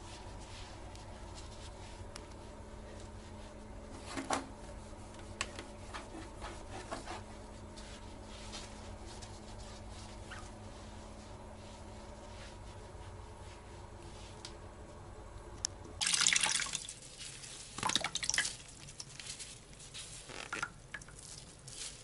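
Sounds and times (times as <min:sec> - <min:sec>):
steady low hum: 0:00.0 - 0:16.0
cloth rubbing plastic seat: 0:20.1 - 0:20.8.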